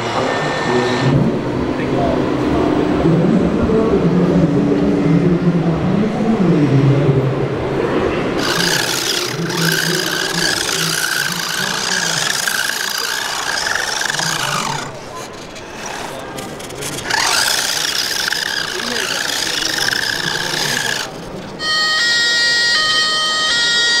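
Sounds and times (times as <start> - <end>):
electric motor whine: 8.4 - 24.0.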